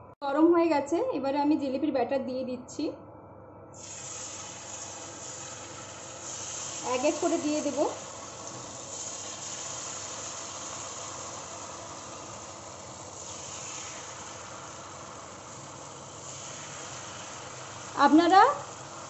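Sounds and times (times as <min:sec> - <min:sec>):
batter sizzling in hot oil: 0:03.8 - 0:19.0.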